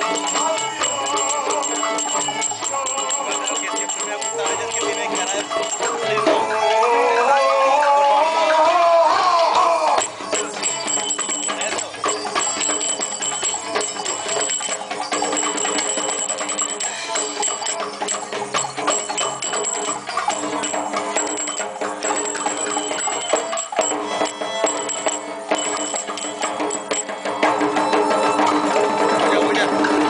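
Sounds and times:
hand drums: 0.0 - 7.2, 9.4 - 30.0
violin playing: 0.0 - 7.4, 23.0 - 29.0
jingling percussion: 0.0 - 7.6, 9.8 - 30.0.

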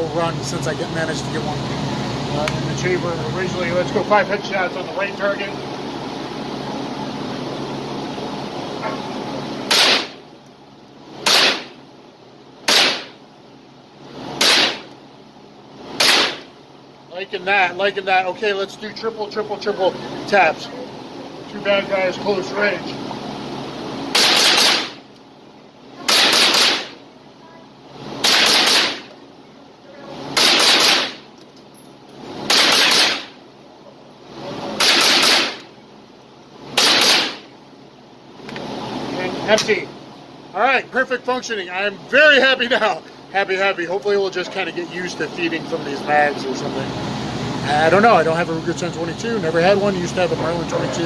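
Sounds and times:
rifle shots echoing indoors: 9.7 - 10.2, 11.2 - 11.7, 12.7 - 13.1, 14.4 - 14.9, 16.0 - 16.4, 24.1 - 25.0, 26.1 - 27.0, 28.2 - 29.1, 30.4 - 31.2, 32.5 - 33.4, 34.8 - 35.6, 36.8 - 37.4.

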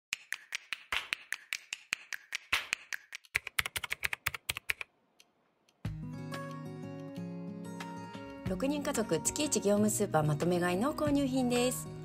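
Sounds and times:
keyboard typing clicks: 3.2 - 5.8.

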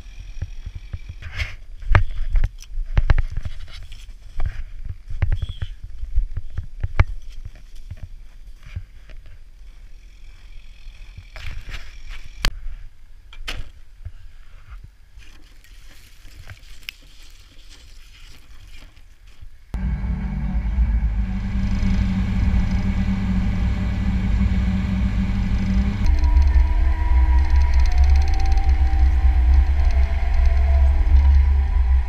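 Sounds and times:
snowcat diesel engine running: 19.8 - 32.0.

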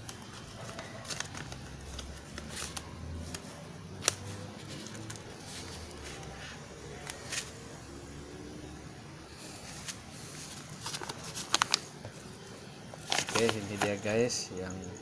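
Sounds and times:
fingers handling plastic tape: 0.0 - 6.3, 9.7 - 12.2, 12.9 - 14.1.

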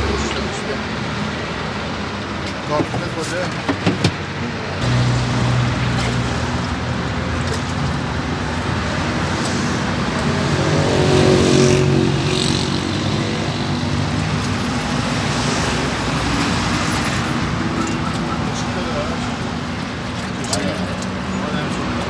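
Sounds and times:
street traffic hum: 0.0 - 22.0
vehicle passing: 8.4 - 22.0.

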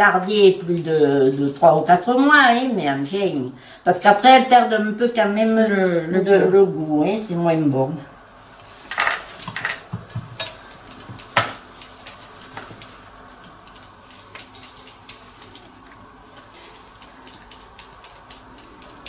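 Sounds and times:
teaspoons clicking and scraping: 8.8 - 19.0.

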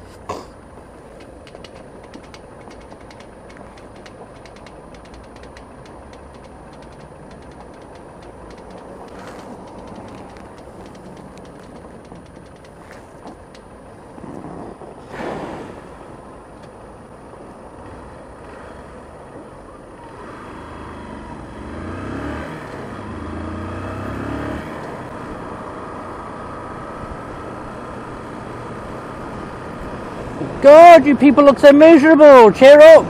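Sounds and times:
motorcycle engine idling and revving: 0.0 - 33.0
brief rush of noise: 15.0 - 16.0.

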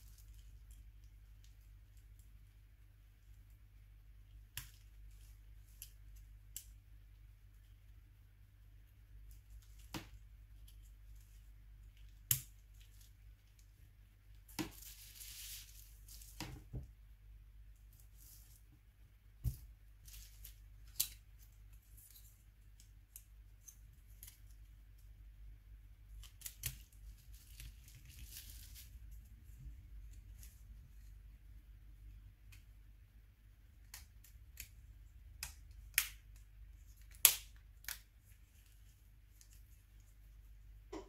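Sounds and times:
low steady hum: 0.0 - 41.0
crinkly rustling: 14.4 - 16.7, 17.8 - 18.8, 20.0 - 22.7, 26.3 - 31.2.

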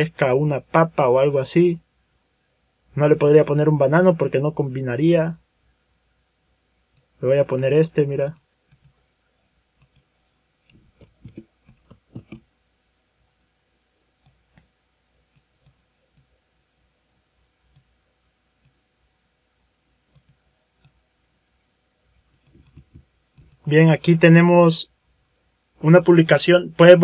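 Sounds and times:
computer mouse clicks: 6.9 - 9.0, 9.8 - 10.1, 10.7 - 12.4, 14.2 - 14.7, 15.3 - 16.3, 18.6 - 18.8, 20.1 - 21.0, 22.4 - 23.6.

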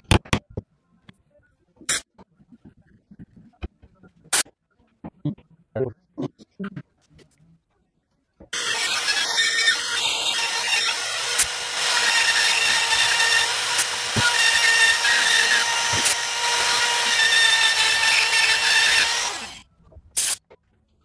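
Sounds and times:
rotary tool routing wood: 8.6 - 19.6.

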